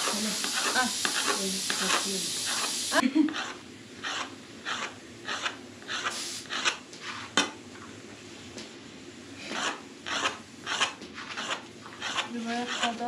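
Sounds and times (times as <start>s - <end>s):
knife cutting dough on board: 9.5s - 13.0s.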